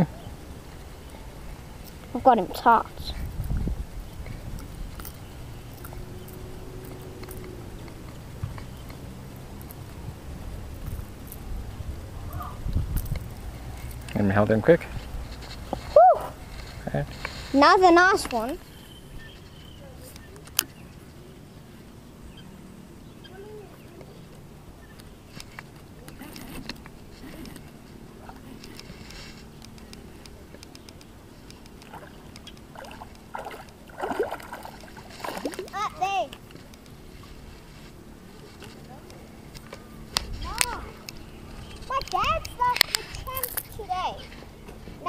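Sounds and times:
low outdoor rumble: 0.0 - 45.0
faint bird call: 15.8 - 16.4.

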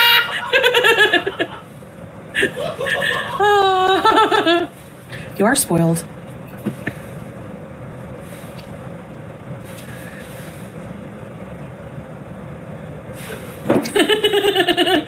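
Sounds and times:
background hum and hiss: 0.0 - 15.0.

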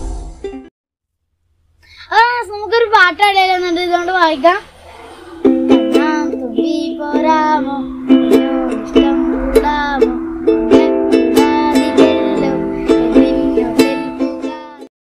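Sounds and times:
ukulele strumming: 5.4 - 14.9.

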